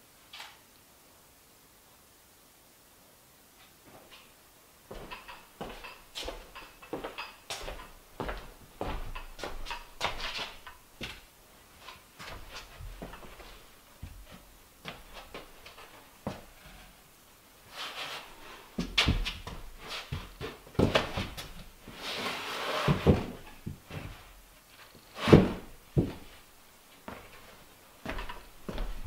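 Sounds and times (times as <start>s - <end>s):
wooden cabinet knocking and creaking: 4.9s - 10.7s.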